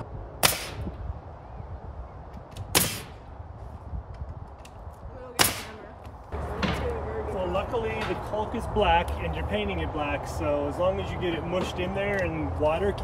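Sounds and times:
nail gun firing into wood: 0.4 - 0.9, 2.6 - 3.2, 5.4 - 5.8.

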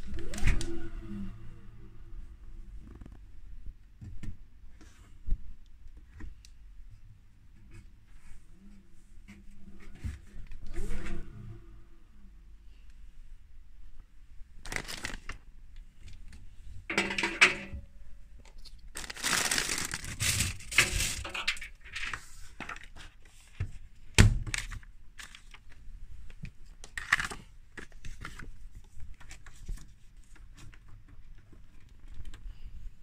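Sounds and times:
rustling and scraping handling noises: 7.5 - 11.4, 14.6 - 24.0, 24.6 - 33.0.

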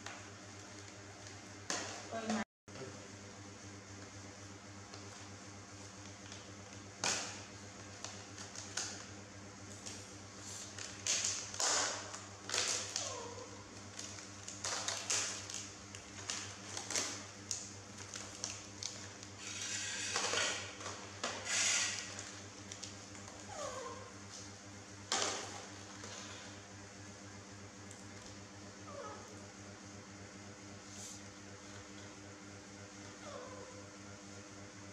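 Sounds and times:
plastic rustling: 9.8 - 23.5.

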